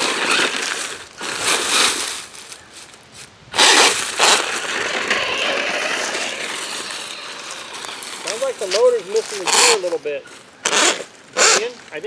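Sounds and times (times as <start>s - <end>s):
tyres crunching through leaves: 0.0s - 12.0s
electric motor running: 3.6s - 9.9s.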